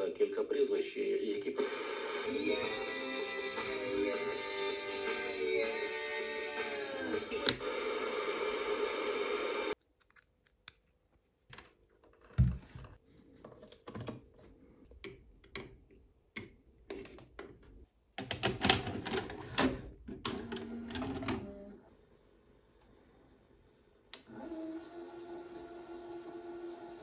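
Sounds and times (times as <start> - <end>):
music: 1.6 - 9.7.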